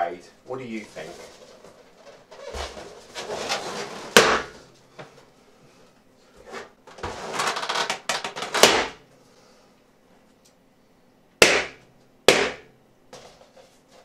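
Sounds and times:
balloons rustling: 0.7s - 4.7s
balloon pops and knocks: 4.2s - 4.5s, 7.9s - 9.0s, 11.4s - 12.7s.

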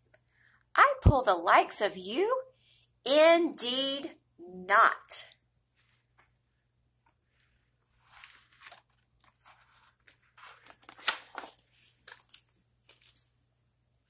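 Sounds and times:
book page turning: 7.3s - 13.3s.

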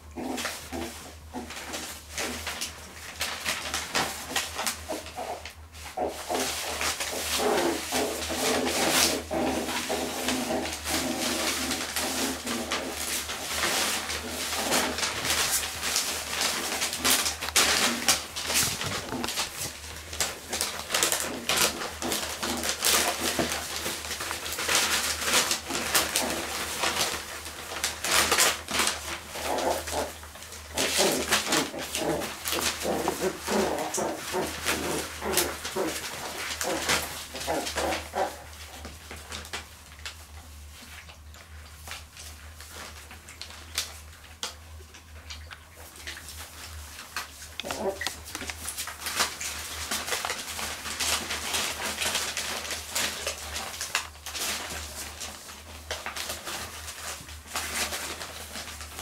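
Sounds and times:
newspaper crackling and rustling: 0.0s - 59.0s
puppies vocalising: 28.0s - 38.6s, 47.6s - 48.7s.

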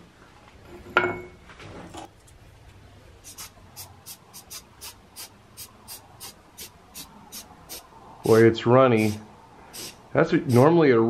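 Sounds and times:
compressed air puffs: 3.2s - 10.7s.

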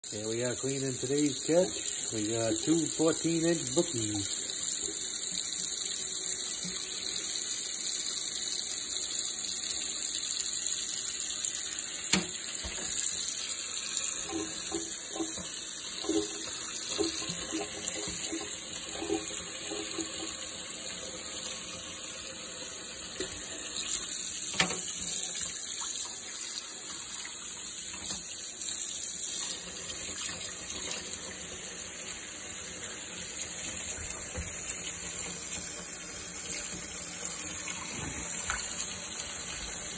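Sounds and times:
faucet running into a steel sink: 0.3s - 39.9s.

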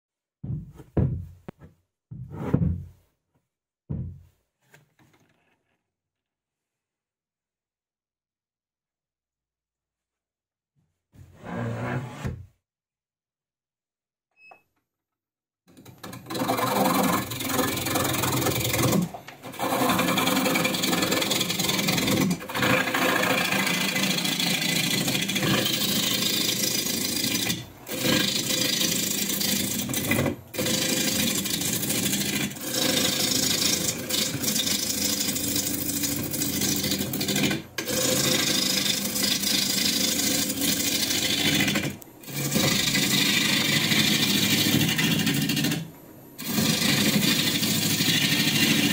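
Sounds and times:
gouge scraping spinning log: 15.7s - 48.9s.

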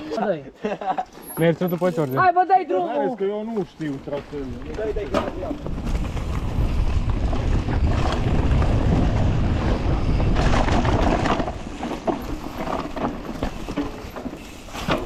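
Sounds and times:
bike rattling over rough ground: 3.4s - 15.0s
wind buffeting microphone: 4.6s - 12.7s.

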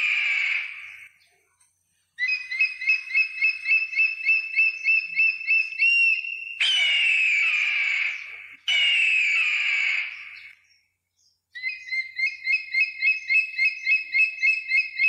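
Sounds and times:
eagle piping notes: 2.2s - 10.5s.

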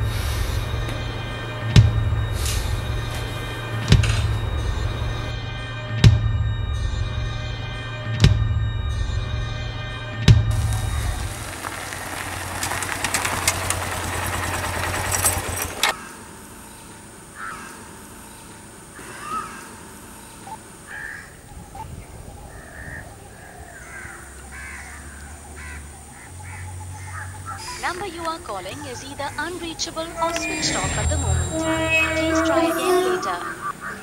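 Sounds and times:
eerie horror film score: 0.0s - 21.4s, 22.2s - 34.0s
birds calling: 10.6s - 34.0s.

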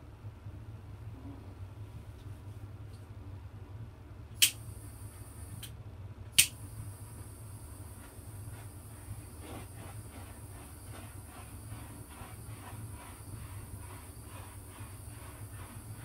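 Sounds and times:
torch igniter clicking: 4.4s - 4.7s, 5.6s - 6.7s
flame hissing: 6.4s - 16.0s.

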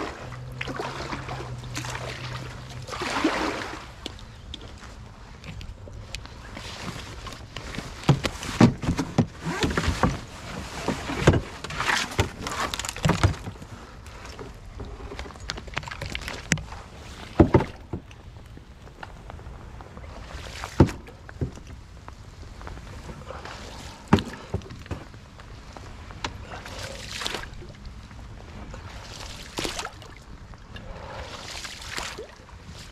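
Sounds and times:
paddle splashing in water: 0.0s - 4.2s, 28.6s - 30.3s, 30.9s - 32.9s.

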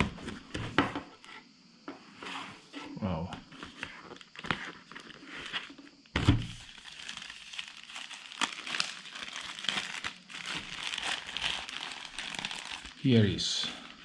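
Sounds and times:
plastic bag crinkling: 6.6s - 14.0s.

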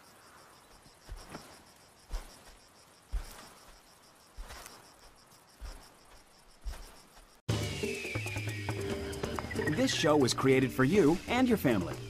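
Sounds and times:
insects chirring: 0.0s - 12.0s
soft dull thumps: 1.0s - 3.8s, 4.4s - 7.3s.

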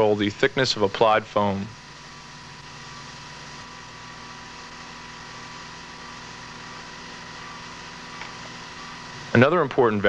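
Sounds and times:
faint steady tones: 0.0s - 10.0s
steady hum and hiss: 0.0s - 10.0s.

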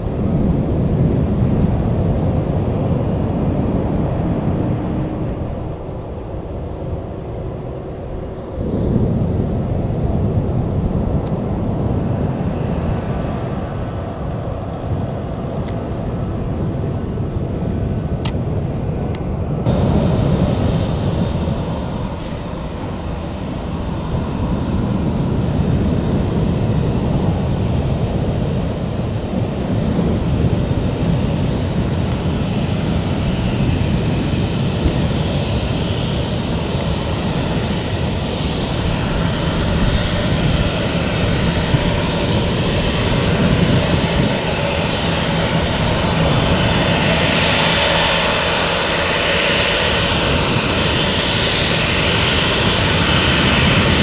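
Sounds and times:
jet engine rumble and whine: 0.0s - 54.0s
airport ambience: 14.9s - 36.4s.

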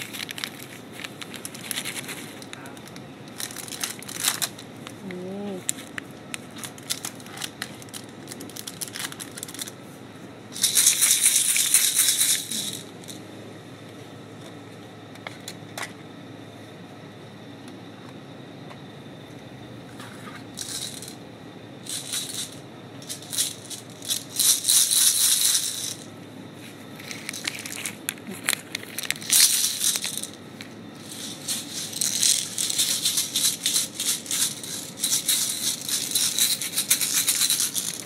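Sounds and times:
candy rattling in plastic container: 0.0s - 4.6s, 6.5s - 9.8s, 10.6s - 12.9s, 20.6s - 21.2s, 21.9s - 26.1s, 27.1s - 30.4s, 31.0s - 38.0s.

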